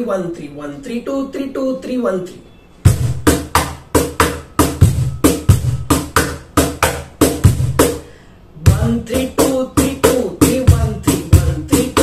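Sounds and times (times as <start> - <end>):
cajon bass strokes: 2.8 - 12.0
cajon snare slaps: 2.9 - 4.4, 6.0 - 8.0.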